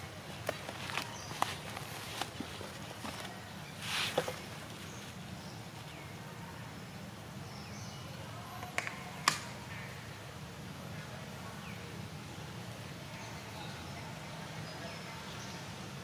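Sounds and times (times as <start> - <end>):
sharp clicks: 8.6 - 9.5.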